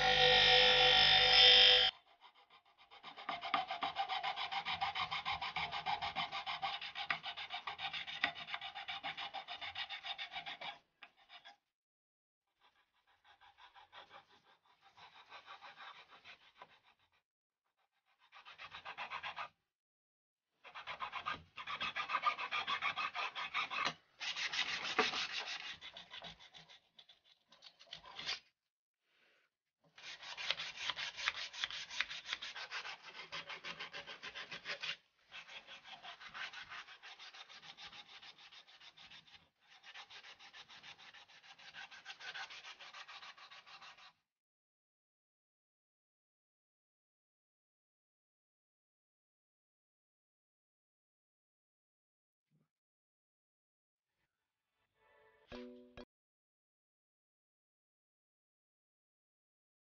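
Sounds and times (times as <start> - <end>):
steel blade scraping wood: 0.0 - 1.9, 30.0 - 44.0.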